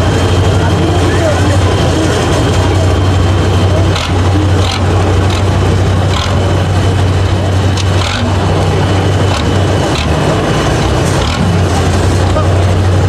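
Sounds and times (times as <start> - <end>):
truck diesel engine droning: 0.0 - 13.0.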